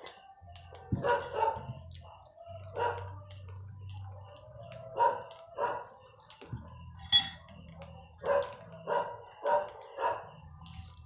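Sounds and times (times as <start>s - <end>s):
dog barking: 1.0s - 1.8s, 2.7s - 3.1s, 4.9s - 6.0s, 8.2s - 10.4s.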